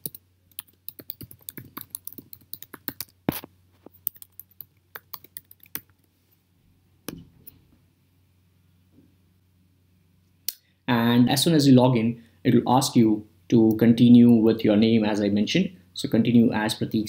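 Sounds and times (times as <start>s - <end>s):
computer keyboard typing: 0.0s - 3.2s, 3.9s - 6.0s.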